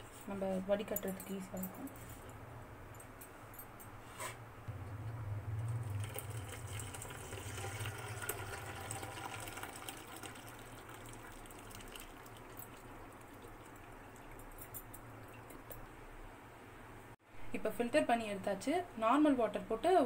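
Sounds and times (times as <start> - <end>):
milk pouring onto cloth: 5.8 - 14.4.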